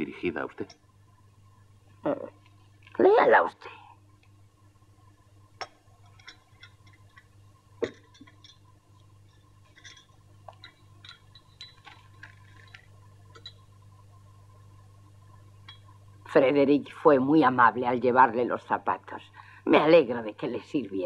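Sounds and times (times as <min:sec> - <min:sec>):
steady low hum: 0:00.0 - 0:21.0
teacups and saucers clinking: 0:05.6 - 0:13.7, 0:15.6 - 0:16.0
teaspoon stirring in a cup: 0:05.6 - 0:13.7, 0:15.6 - 0:16.0.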